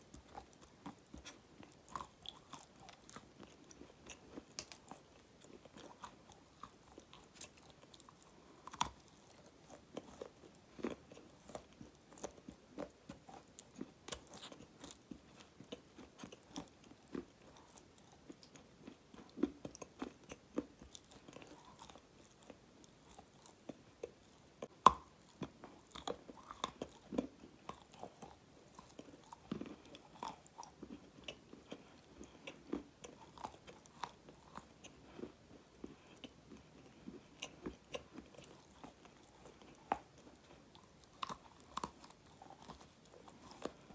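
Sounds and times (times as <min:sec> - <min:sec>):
chewing crunchy food: 0:00.0 - 0:43.9.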